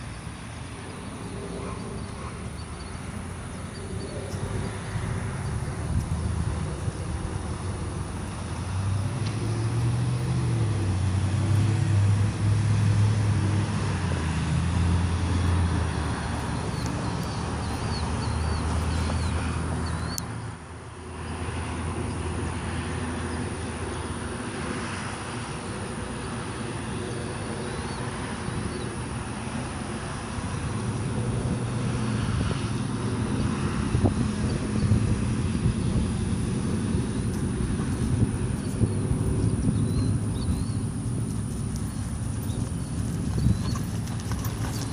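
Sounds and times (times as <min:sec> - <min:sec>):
outdoor traffic noise: 0:00.0 - 0:44.9
vehicle engine running: 0:29.1 - 0:44.9.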